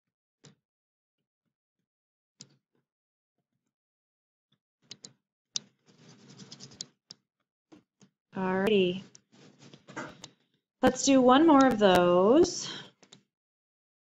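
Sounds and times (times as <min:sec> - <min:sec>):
stylus tapping tablet screen: 0:09.9 - 0:13.2.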